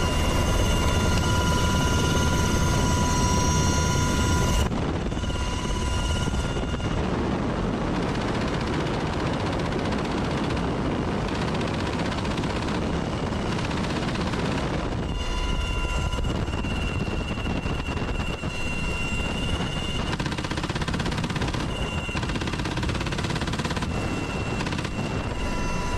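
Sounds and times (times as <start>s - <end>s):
helicopter rotor noise: 0.0s - 25.9s
turbine whine: 0.0s - 25.9s
machine gun firing: 19.8s - 25.8s.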